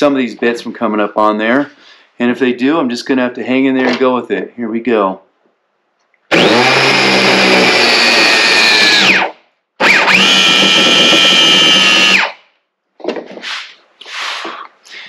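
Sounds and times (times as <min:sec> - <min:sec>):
angle grinder motor whining: 0:06.3 - 0:12.4.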